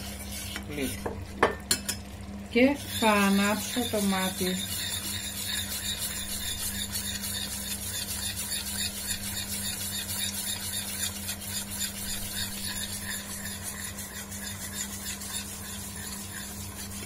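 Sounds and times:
metal spoon stirring in saucepan: 0.0 - 2.0, 2.6 - 17.0
steady low hum: 0.0 - 17.0.

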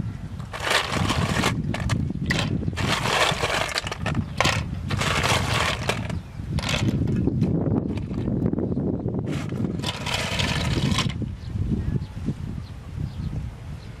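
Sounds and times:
wind rumble on microphone: 0.0 - 14.0
snail shells clattering in metal bowl: 0.5 - 7.3, 9.4 - 11.2.

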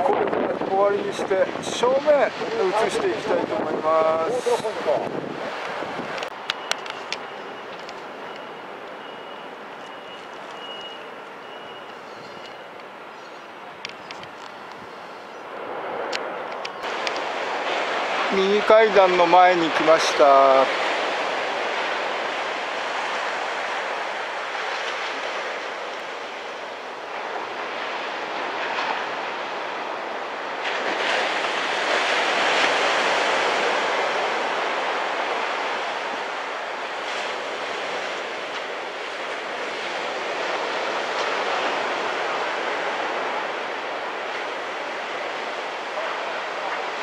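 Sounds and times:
small surf breaking: 15.6 - 47.0.

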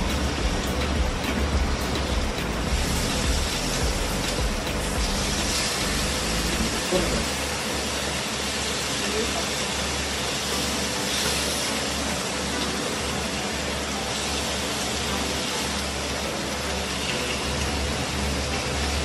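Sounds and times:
low hum: 0.0 - 7.4
meat sizzling on grill: 0.0 - 19.0.

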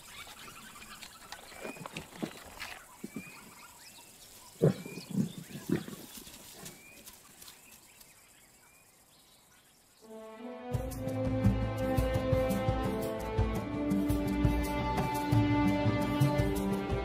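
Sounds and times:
big cat growling: 4.6 - 6.7.

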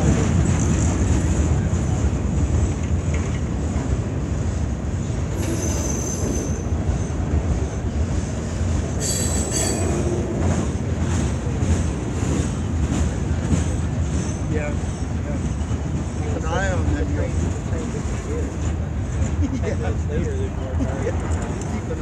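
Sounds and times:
freight train rumbling past: 0.0 - 22.0
metallic wheel squeal: 5.4 - 8.3, 9.0 - 10.0.

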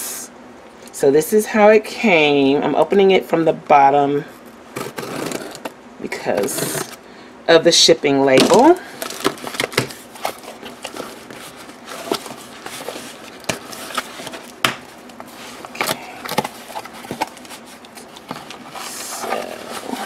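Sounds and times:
cardboard flaps scraping: 4.7 - 5.7, 9.1 - 20.0.

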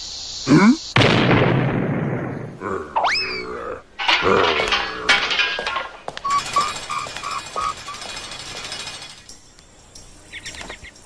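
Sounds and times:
cartoon crash with clatter: 4.0 - 9.3
short evenly spaced beeps: 6.2 - 8.1.

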